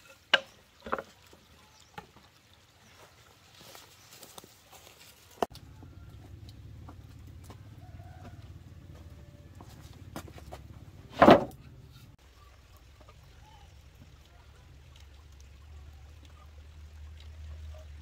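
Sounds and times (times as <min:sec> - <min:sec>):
loud short thump: 0:11.1 - 0:11.6.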